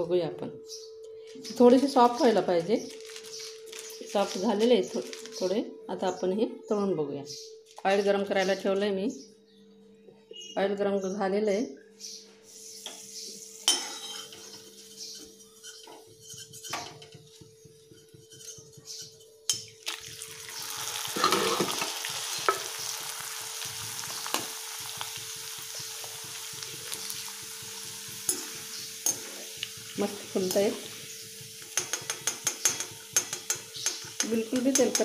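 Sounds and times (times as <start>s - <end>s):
chips sizzling in hot oil: 19.6s - 35.0s
spoon clicking against pan: 31.8s - 35.0s.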